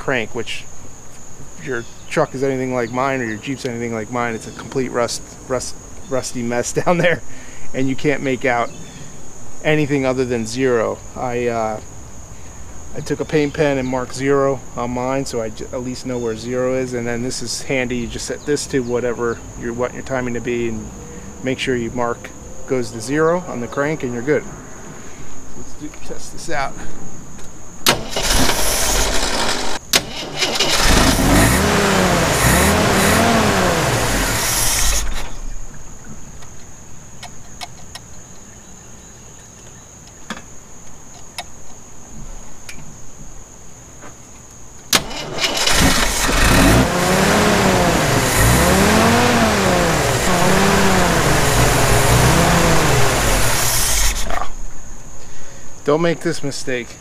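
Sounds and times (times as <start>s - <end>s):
car engine revving: 27.9s - 35.4s, 45.0s - 54.4s.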